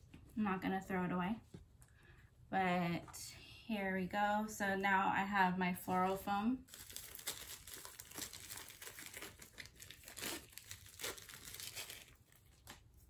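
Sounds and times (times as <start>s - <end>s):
plastic wrapper crinkling: 6.6s - 13.0s.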